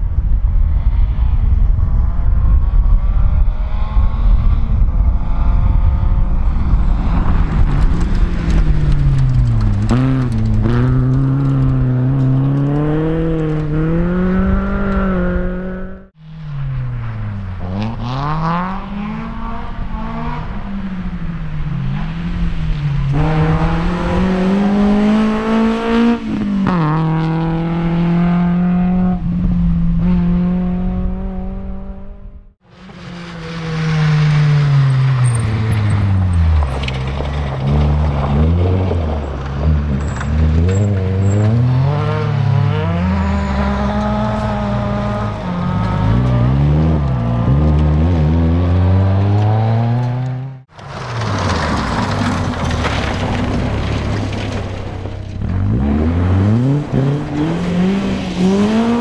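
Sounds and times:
heavy rumble: 0:00.0 - 0:25.3, 0:43.7 - 0:59.0
rally car engines revving: 0:02.7 - 0:59.0.

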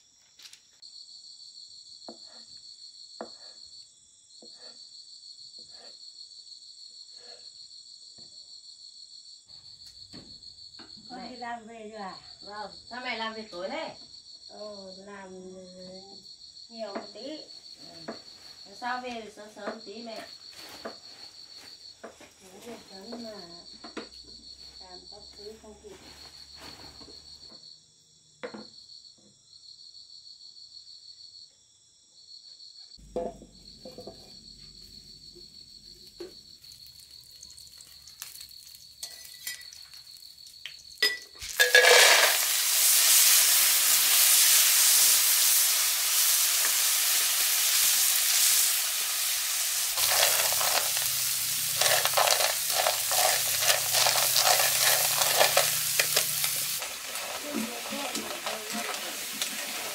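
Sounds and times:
crickets chirping: 0:00.0 - 0:59.9
food sizzling in hot oil: 0:34.8 - 0:59.9
scraping of stirring: 0:36.0 - 0:40.9, 0:49.9 - 0:59.9.

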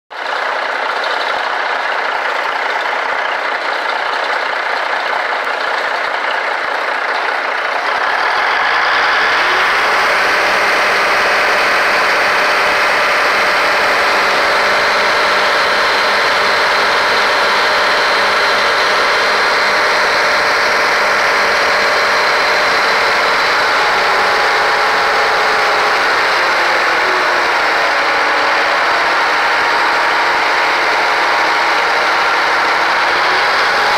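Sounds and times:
tractor diesel engine running: 0:00.1 - 0:33.9.

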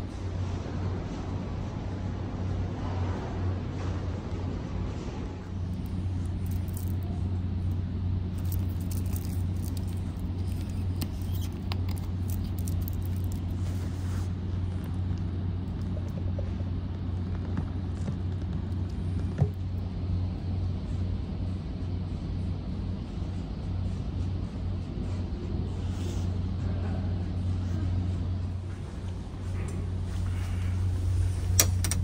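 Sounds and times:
low engine hum: 0:00.0 - 0:32.0
plastic bottle crackling: 0:05.6 - 0:13.6.

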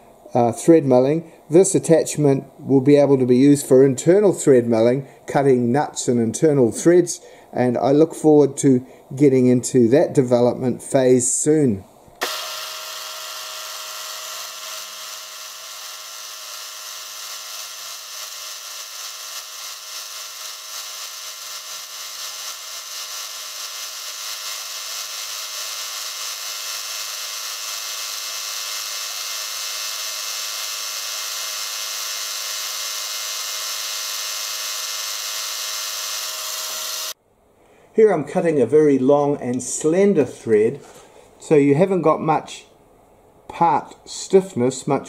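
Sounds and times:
cutting hiss: 0:12.2 - 0:37.2
milling machine whine: 0:12.2 - 0:37.2.

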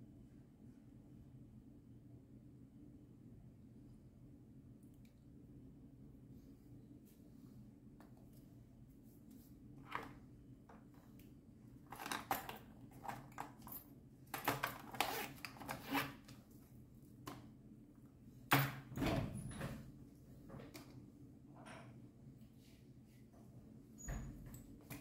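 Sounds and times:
faint room hum: 0:00.0 - 0:25.0
small objects handled by hand: 0:09.2 - 0:17.5.

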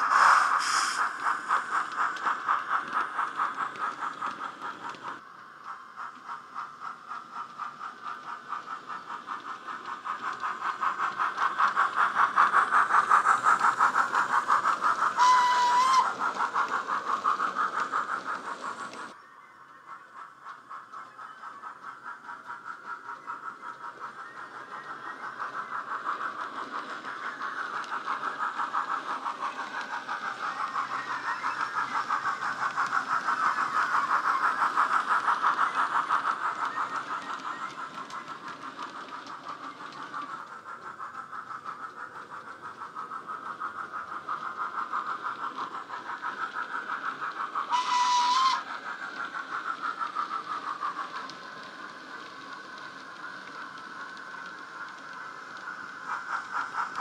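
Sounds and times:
model steam locomotive chuffs: 0:00.0 - 0:57.0
train whistle blast: 0:15.2 - 0:16.0, 0:47.7 - 0:48.6.

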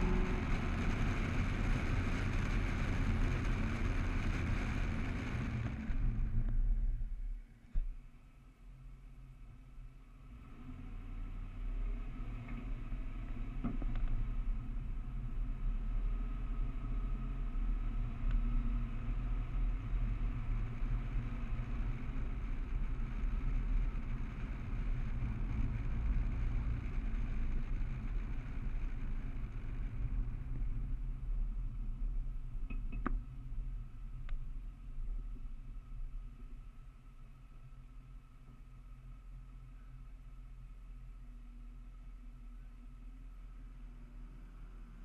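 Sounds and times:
car engine accelerating: 0:00.0 - 0:07.1
road and wind rumble: 0:00.0 - 0:45.0.

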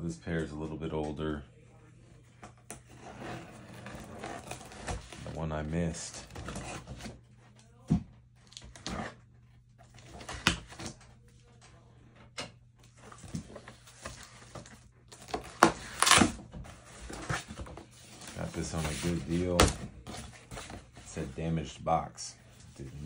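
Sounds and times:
cardboard rustling: 0:02.7 - 0:07.3, 0:12.9 - 0:21.6.

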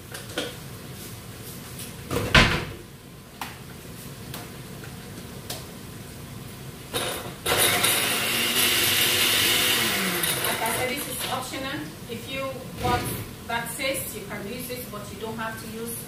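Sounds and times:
blender motor running: 0:07.5 - 0:11.3.

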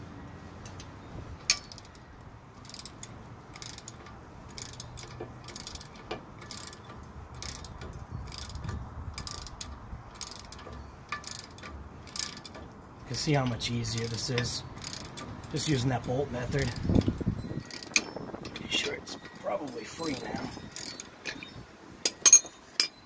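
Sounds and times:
ratchet wrench clicking: 0:01.5 - 0:02.0, 0:02.6 - 0:19.0, 0:19.8 - 0:23.0.

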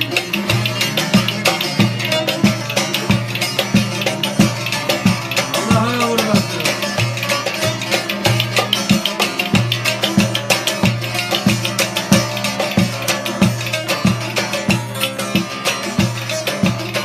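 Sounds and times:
folk melody instrument: 0:00.0 - 0:17.0
steady drum beat: 0:00.0 - 0:17.0.

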